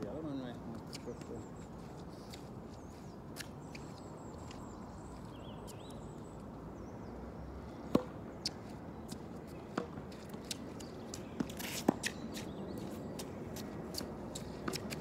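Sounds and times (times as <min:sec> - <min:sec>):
bird chirps: 0:00.9 - 0:07.1
tennis ball struck by rackets: 0:07.8 - 0:10.8, 0:11.4 - 0:12.4, 0:13.2 - 0:15.0
tennis ball bouncing: 0:07.8 - 0:15.0.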